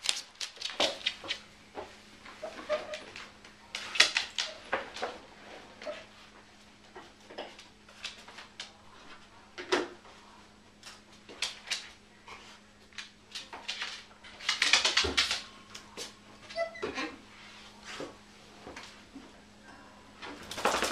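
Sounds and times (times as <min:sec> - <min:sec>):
dog claws clicking on hardwood floor: 0:00.0 - 0:01.4, 0:02.7 - 0:05.2, 0:10.8 - 0:12.0, 0:12.9 - 0:16.1, 0:20.4 - 0:20.9.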